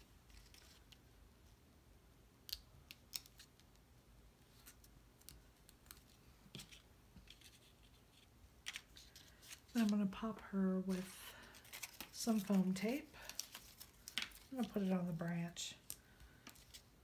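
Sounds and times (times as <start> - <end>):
paper ticks and rustles: 11.6 - 14.8.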